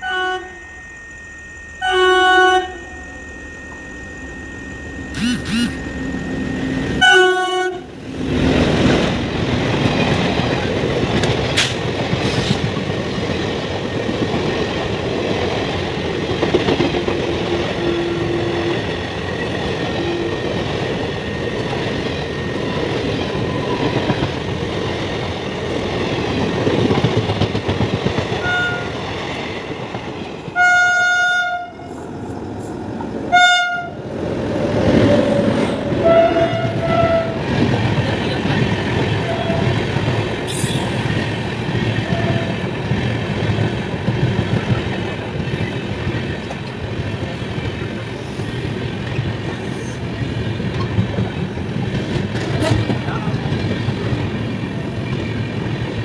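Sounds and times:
train horn blast: 0.0s - 0.8s, 1.8s - 8.0s, 17.4s - 18.9s, 19.9s - 20.6s, 28.4s - 29.0s, 30.5s - 32.0s, 33.3s - 34.0s, 35.2s - 37.4s, 39.2s - 39.8s, 42.0s - 42.7s
train clattering over rail joints: 8.3s - 30.6s, 34.8s - 56.0s.

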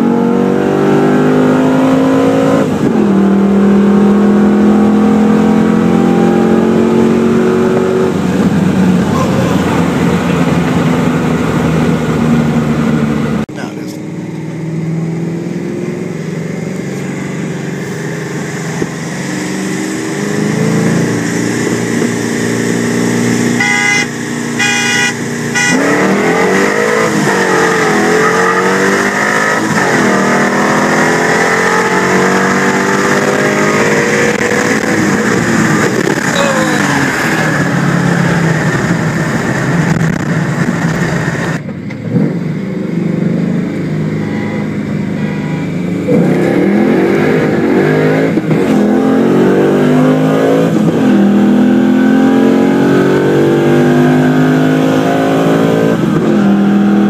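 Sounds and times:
car engine revving: 0.0s - 57.0s
car horn: 23.5s - 26.5s, 44.1s - 45.8s.

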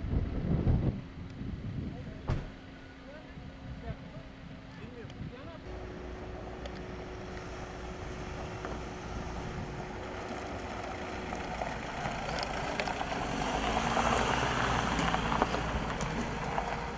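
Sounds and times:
van engine: 0.1s - 16.9s
tyres on gravel: 5.7s - 16.9s.

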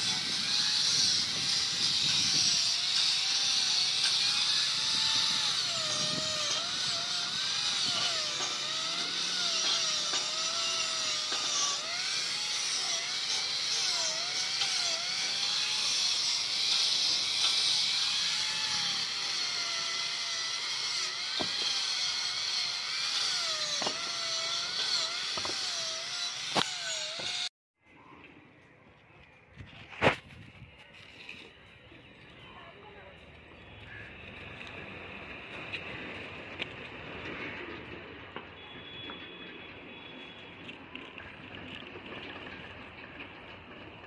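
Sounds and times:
electric drill running: 0.0s - 27.5s.

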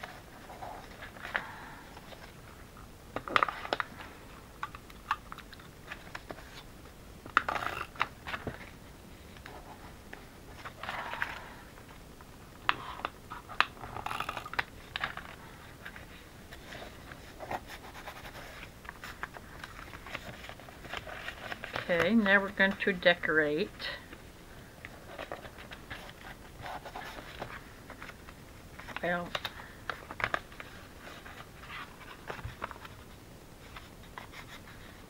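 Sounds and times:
paper crinkling and rustling: 0.0s - 6.7s, 12.6s - 23.0s, 24.9s - 35.0s.

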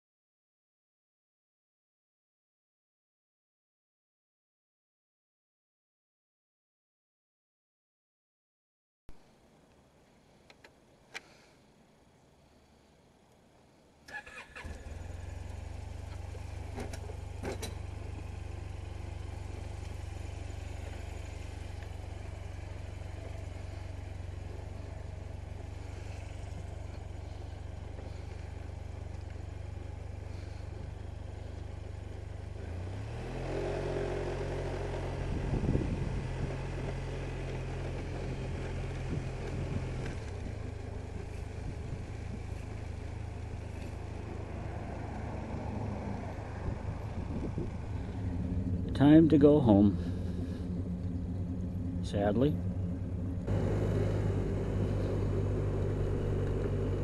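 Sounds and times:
scooter engine idling and revving: 14.1s - 57.0s.

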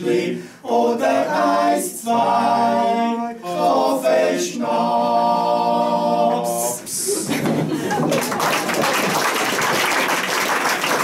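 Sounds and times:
women singing together: 0.0s - 6.9s.

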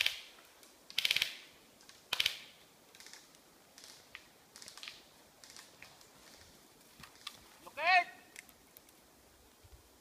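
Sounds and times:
faint clicks: 0.0s - 7.4s, 8.3s - 9.0s.

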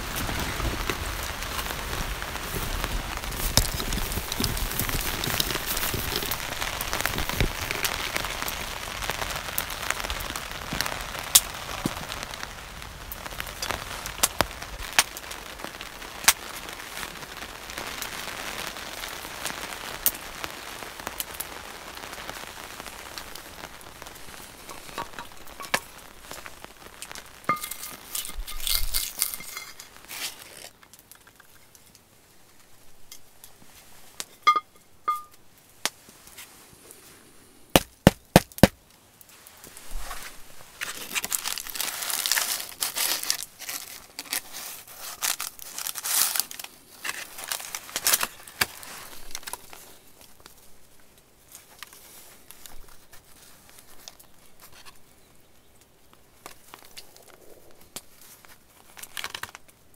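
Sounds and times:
baking paper crinkling: 0.0s - 17.4s, 21.5s - 31.4s, 39.6s - 50.6s.

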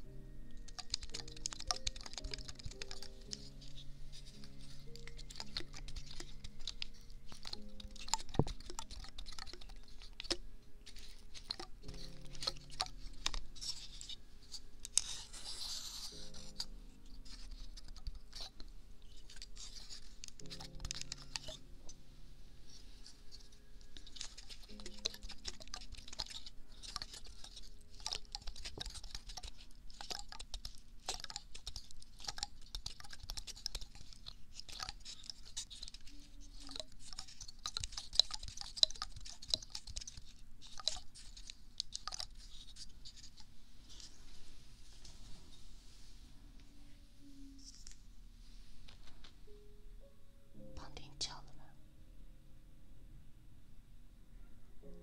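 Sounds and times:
pine cone scratching microphone: 0.8s - 21.7s.

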